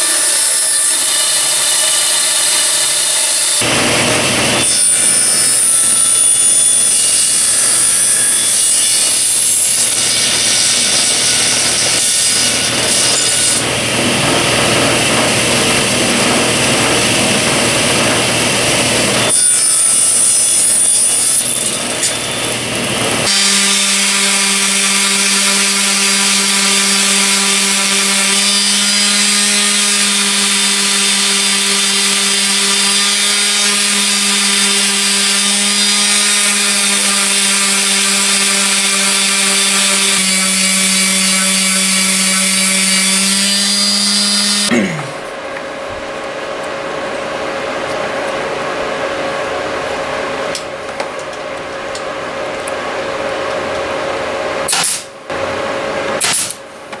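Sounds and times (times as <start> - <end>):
table saw cutting wood: 0.0 - 44.7, 52.0 - 56.6
orbit sander humming: 22.5 - 44.7.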